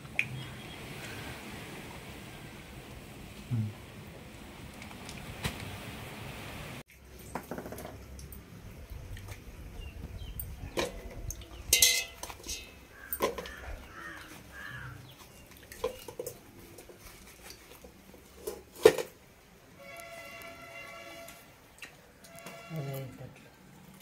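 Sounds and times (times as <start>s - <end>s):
steel pot and knife clinking: 10.4s - 13.7s.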